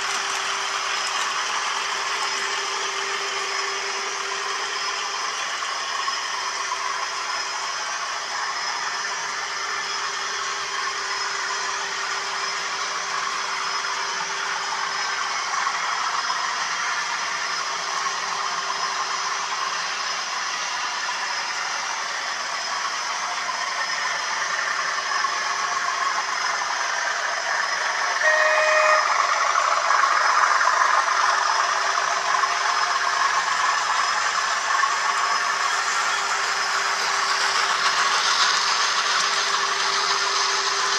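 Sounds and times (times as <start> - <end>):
model train motors whirring: 0.0 - 40.9
model train horn blast: 28.2 - 29.7.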